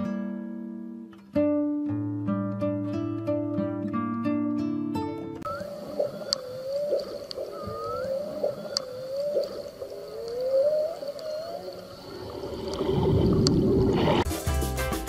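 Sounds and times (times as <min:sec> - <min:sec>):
faint sharp clicks: 0:05.5 - 0:13.6
steady tone: 0:05.5 - 0:14.3
whale moaning calls: 0:05.5 - 0:14.3.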